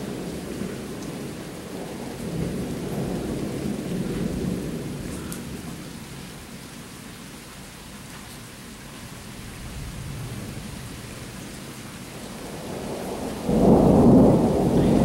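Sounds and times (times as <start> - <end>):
steady rain: 0.0 - 15.0
thunder rumbling: 9.4 - 15.0.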